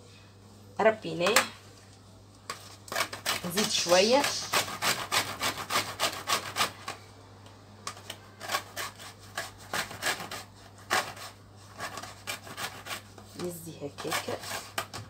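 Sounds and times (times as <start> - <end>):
peel rasping on metal grater: 2.9 - 6.8, 8.4 - 13.2, 13.8 - 15.0.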